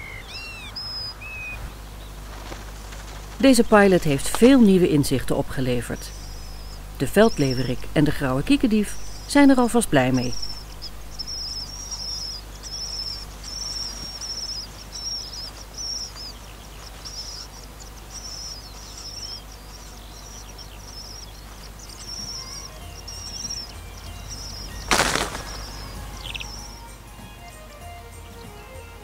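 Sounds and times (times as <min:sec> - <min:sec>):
nestlings begging calls: 0:00.0 - 0:28.8
loud rustle: 0:01.7 - 0:03.5, 0:24.8 - 0:26.6.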